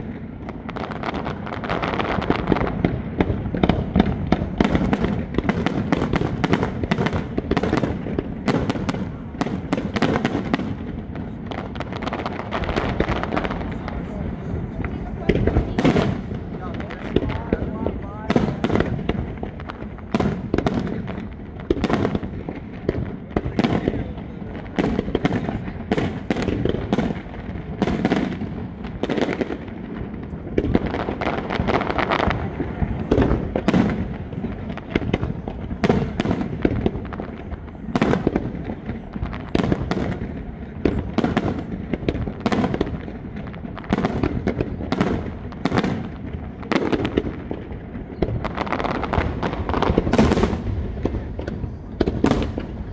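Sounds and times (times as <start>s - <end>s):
fireworks bursting with sharp bangs: 0.0s - 52.9s.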